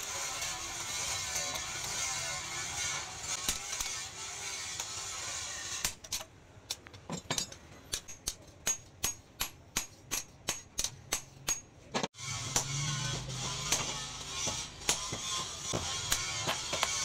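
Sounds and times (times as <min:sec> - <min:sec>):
hammer striking steel on anvil: 0:07.9 - 0:11.8, 0:12.5 - 0:17.0.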